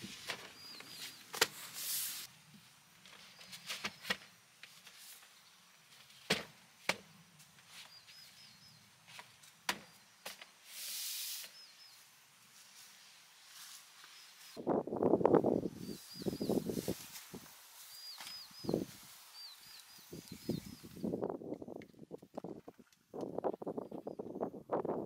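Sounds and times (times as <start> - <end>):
short hiss: 1.6 - 2.3, 10.6 - 11.8.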